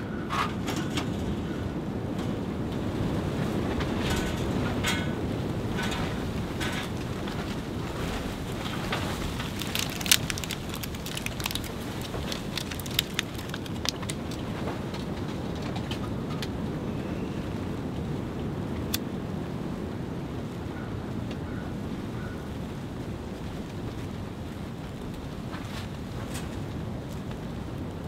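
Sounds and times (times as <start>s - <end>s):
wind and rain on tent fabric: 0.0s - 28.0s
small sharp snaps and clicks: 9.3s - 15.1s.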